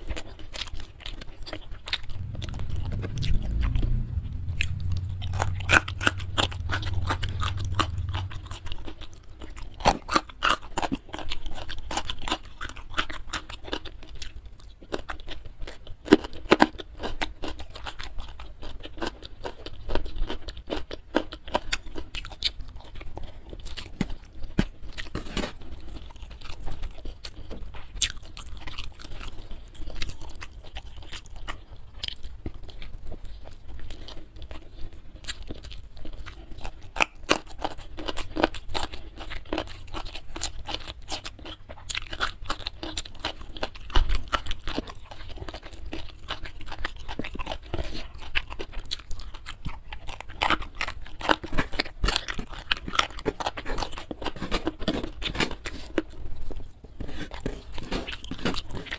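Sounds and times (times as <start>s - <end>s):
chewing crunchy food: 0.0s - 58.9s.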